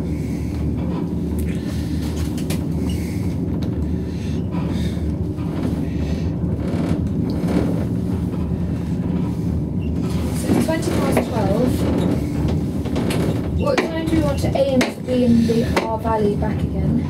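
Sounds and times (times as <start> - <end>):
gondola cabin rumble: 0.0 - 17.0.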